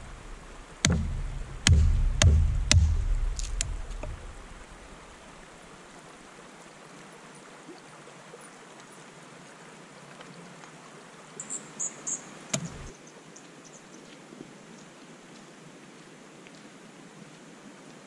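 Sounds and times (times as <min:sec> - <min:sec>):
sharp knock: 0:00.0 - 0:04.8, 0:12.6 - 0:12.9
creek flowing over stones: 0:00.0 - 0:18.0.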